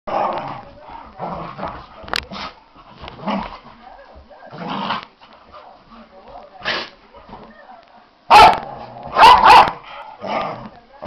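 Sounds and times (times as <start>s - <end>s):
dogs yipping and barking: 9.2s - 9.8s.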